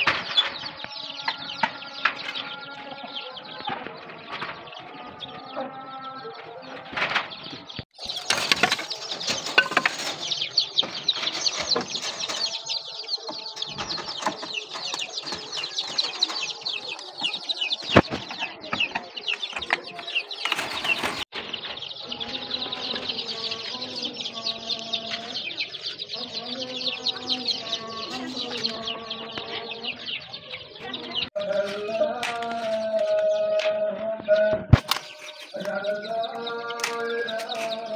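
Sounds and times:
chicks cheeping: 0.0s - 37.9s
hand tools knocking on wire mesh: 8.0s - 21.2s.

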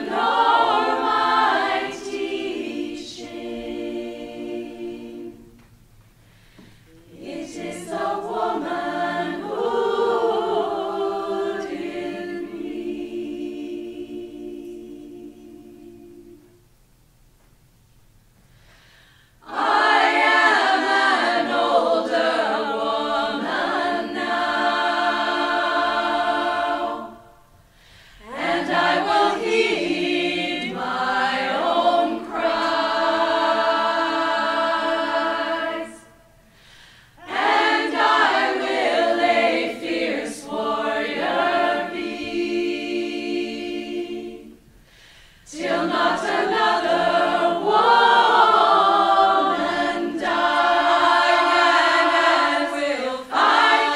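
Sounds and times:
choir singing a cappella: 0.0s - 16.7s, 19.3s - 53.9s.

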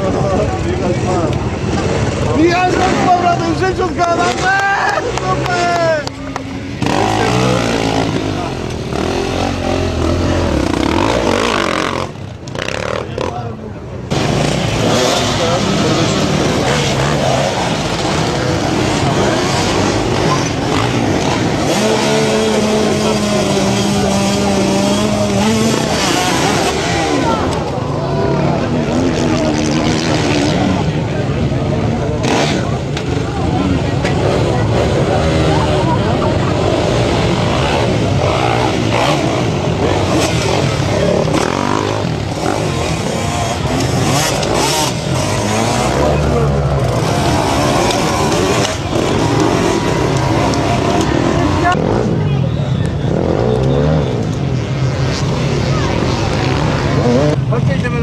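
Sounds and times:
dirt bike engines revving: 0.0s - 58.0s
spectators' voices: 0.0s - 58.0s.

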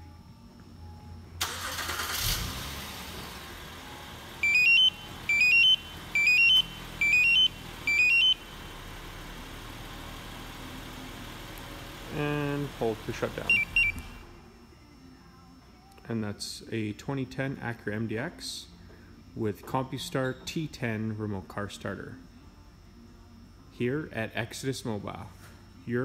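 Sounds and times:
car engine starting and idling: 1.4s - 14.4s
rising three-note beeps: 13.4s - 14.2s.

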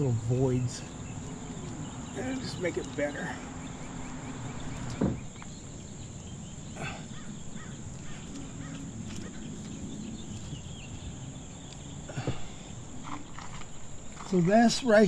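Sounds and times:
crickets buzzing: 0.0s - 15.0s
outdoor background noise: 0.0s - 15.0s.

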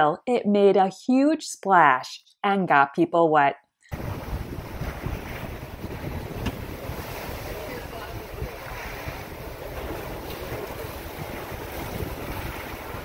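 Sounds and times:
wind buffeting microphone: 3.9s - 13.0s
pool water sloshing: 4.0s - 13.0s.

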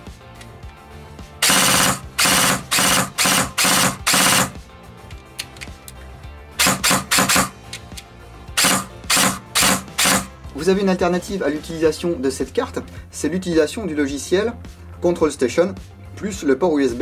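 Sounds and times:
background music: 0.0s - 17.0s
airsoft gun gearbox firing: 1.4s - 4.6s, 6.6s - 7.6s, 8.6s - 10.3s.

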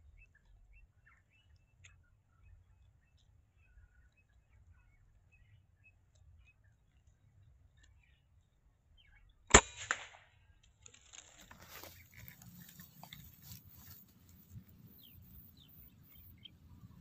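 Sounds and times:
air rifle shot: 9.5s - 10.3s
gun handling rustles and clicks: 10.6s - 14.5s.

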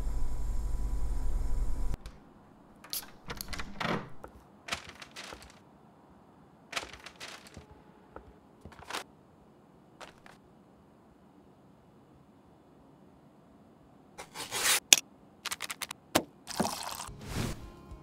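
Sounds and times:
kitchen knocks and clicks: 2.8s - 5.6s
rustling: 4.2s - 5.7s, 6.7s - 9.0s, 10.0s - 10.4s.

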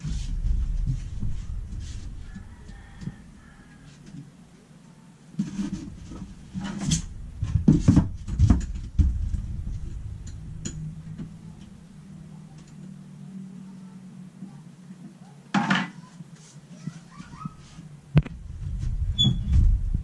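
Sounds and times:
faint low hum: 0.0s - 20.0s
objects knocking and clattering: 5.4s - 11.8s.

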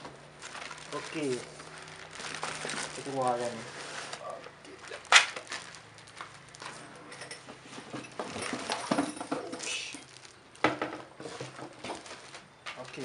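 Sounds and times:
plastic wrapping crinkling: 0.3s - 6.9s, 9.6s - 13.0s.

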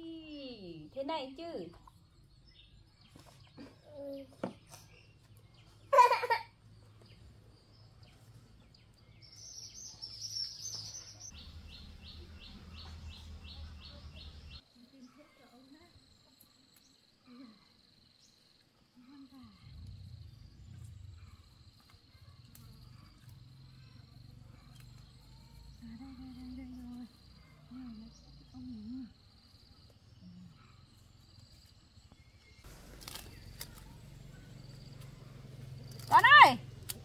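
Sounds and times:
leaves rustling: 32.6s - 34.3s.

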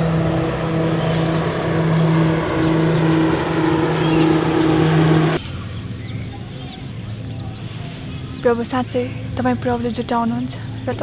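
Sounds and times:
motor droning: 0.0s - 5.4s
noisy rush: 0.0s - 6.0s.

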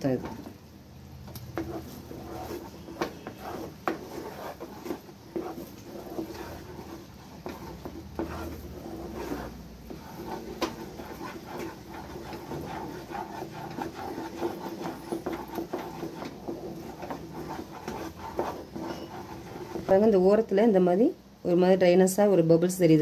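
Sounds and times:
spatula scraping a pan: 1.5s - 20.1s
spatula tapping a pan: 2.6s - 19.9s.

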